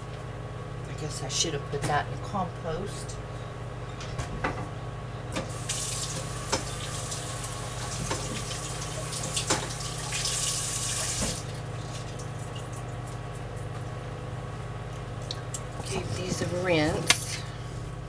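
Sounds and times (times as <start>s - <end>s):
tap running into sink: 5.7s - 7.0s, 7.9s - 11.4s.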